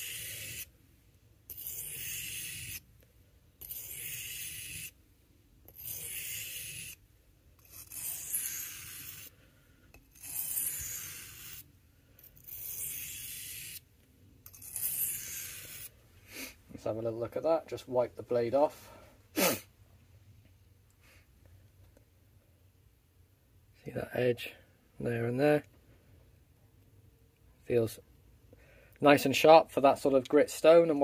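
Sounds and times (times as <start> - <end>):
knife blade scraping on whetstone: 0.0 - 0.7, 1.5 - 2.8, 3.6 - 5.0, 5.7 - 7.0, 7.6 - 9.3, 9.9 - 13.8, 14.4 - 15.9.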